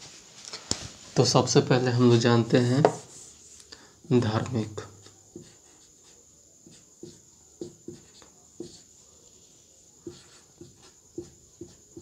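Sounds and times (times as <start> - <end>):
marker pen writing on whiteboard: 2.7 - 3.5, 4.2 - 12.0.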